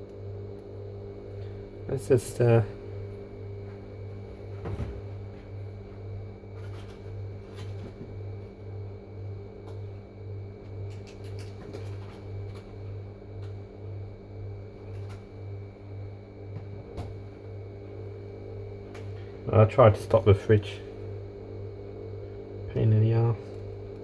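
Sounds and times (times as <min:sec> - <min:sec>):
refrigerator compressor humming: 0:00.0 - 0:24.0.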